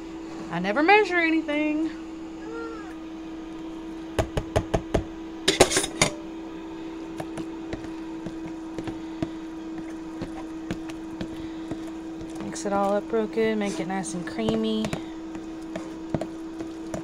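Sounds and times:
steady hum: 0.0s - 17.0s
potato masher knocking on bowl: 4.2s - 5.1s, 14.3s - 17.0s.

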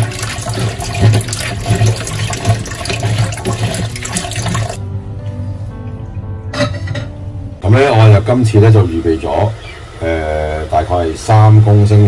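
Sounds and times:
hands rubbing and rinsing nuts: 0.0s - 4.8s
tap water running into bowl: 0.0s - 4.8s
background music: 0.0s - 10.6s.

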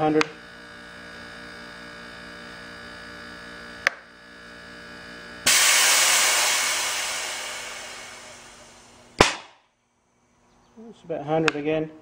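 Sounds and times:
steady hum: 0.0s - 10.4s
compressed air rush: 5.5s - 9.2s.

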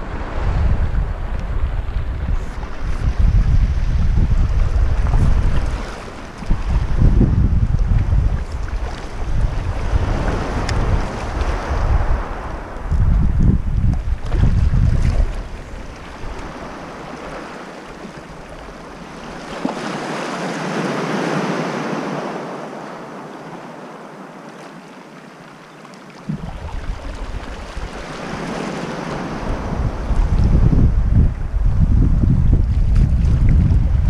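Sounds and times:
wind buffeting microphone: 0.0s - 17.6s, 26.3s - 34.0s
small waves washing: 0.0s - 30.7s.

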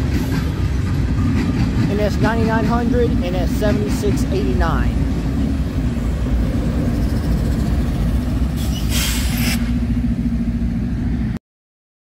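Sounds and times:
diesel locomotive rumbling: 0.0s - 11.4s
compressed air hiss: 8.6s - 9.8s.

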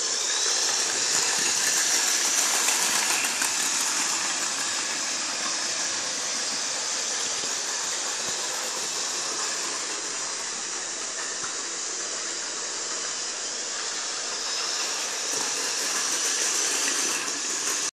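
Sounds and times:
wheels rolling on metal rails: 0.0s - 12.3s
model train motor whirring: 0.0s - 17.9s.

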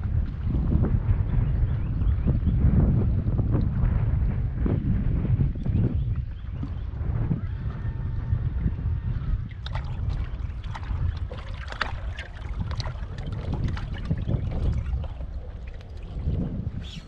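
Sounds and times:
wind buffeting microphone: 0.0s - 17.0s
water lapping against boat hull: 5.9s - 17.0s
splashy water slaps: 9.5s - 16.6s.

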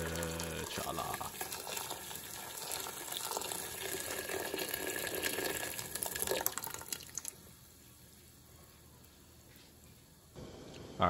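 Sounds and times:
hot water pouring into metal pot: 0.0s - 7.4s
water dripping: 0.0s - 7.4s.

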